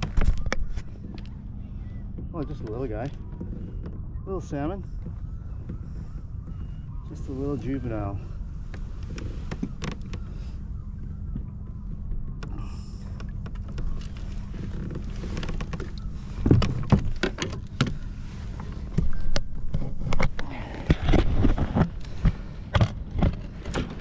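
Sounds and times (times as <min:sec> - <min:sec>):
steady low rumble: 0:00.0 - 0:24.0
fishing gear clicks and knocks: 0:12.4 - 0:24.0.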